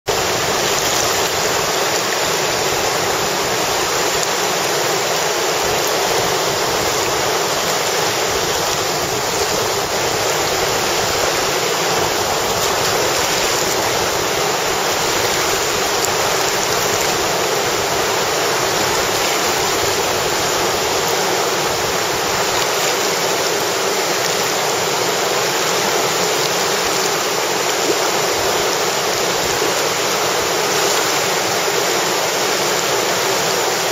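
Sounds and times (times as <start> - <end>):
rapids rushing over rocks: 0.0 - 33.9.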